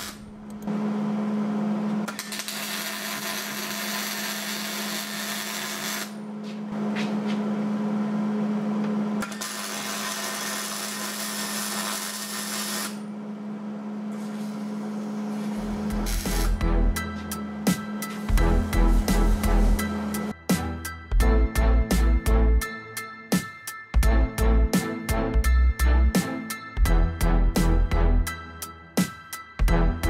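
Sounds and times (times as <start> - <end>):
welding arc crackling and hissing: 0.0 - 0.3, 2.1 - 6.2, 9.2 - 13.0, 15.4 - 16.7
steady hum: 12.9 - 20.4.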